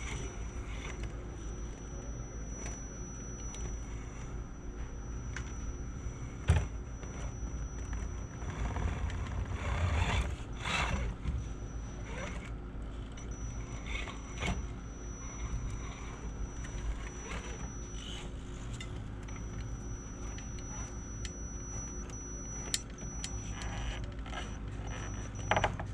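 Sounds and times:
electric motor whine: 0:00.0 - 0:25.9.

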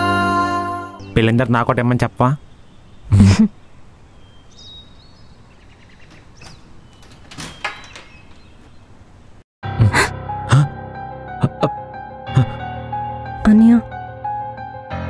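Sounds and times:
door hinge squeaks: 0:05.6 - 0:08.9
door knocks and rattles: 0:05.8 - 0:08.9.

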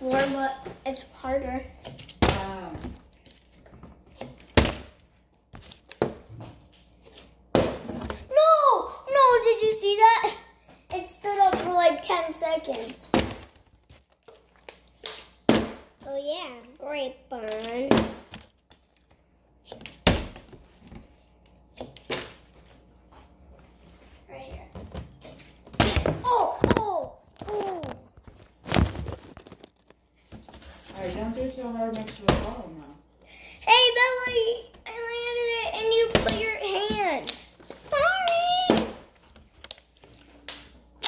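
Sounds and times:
handling of plastic bottle: 0:26.6 - 0:30.9.

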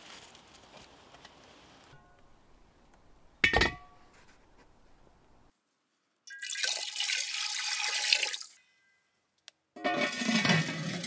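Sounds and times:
water poured into iron pot: 0:06.3 - 0:08.6.

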